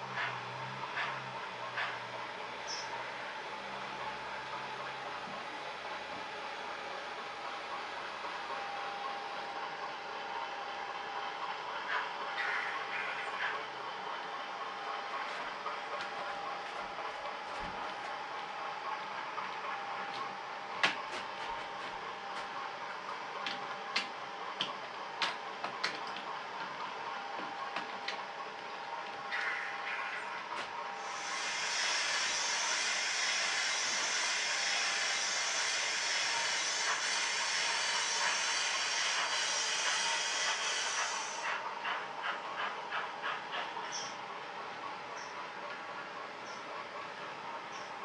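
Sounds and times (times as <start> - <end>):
steam locomotive exhaust chuffs: 28.9 - 44.2
steam hissing: 31.0 - 42.0.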